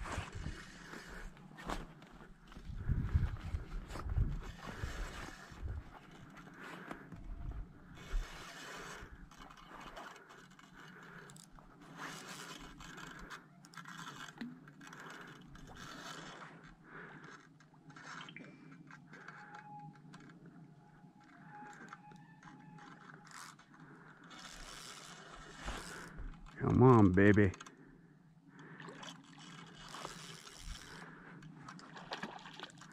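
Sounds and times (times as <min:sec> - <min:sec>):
fishing reel gears whirring: 0:07.9 - 0:16.5, 0:21.2 - 0:26.6, 0:29.0 - 0:31.8.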